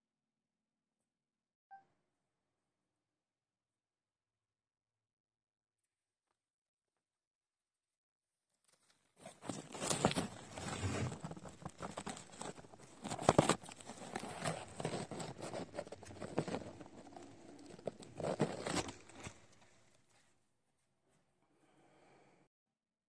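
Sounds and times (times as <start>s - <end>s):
camera rustling through leaves: 9.2s - 19.8s.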